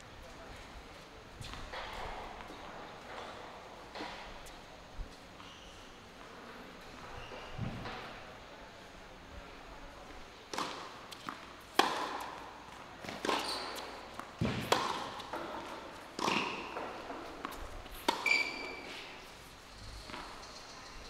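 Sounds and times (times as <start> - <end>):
tennis ball bounces: 10.5 - 18.8
tennis racket strikes: 14.4 - 18.8.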